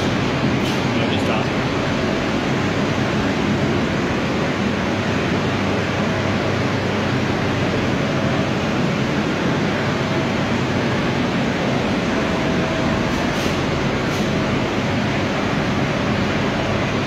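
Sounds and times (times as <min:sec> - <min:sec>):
air blowers rushing: 0:00.0 - 0:17.0.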